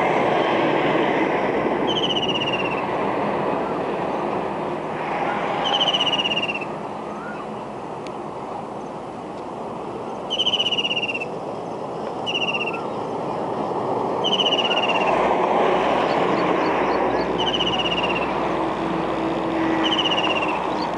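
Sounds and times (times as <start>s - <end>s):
traffic noise: 0.0s - 20.9s
kingfisher trilling call: 1.9s - 2.8s, 5.6s - 7.5s, 10.3s - 11.4s, 12.2s - 13.0s, 14.2s - 15.2s, 16.0s - 18.4s, 19.7s - 20.9s.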